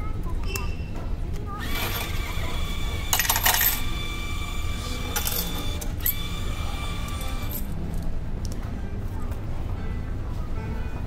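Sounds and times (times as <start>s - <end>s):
vending machine hum: 0.0s - 8.4s
coins clattering into tray: 3.0s - 3.9s, 5.1s - 6.4s, 7.1s - 7.8s.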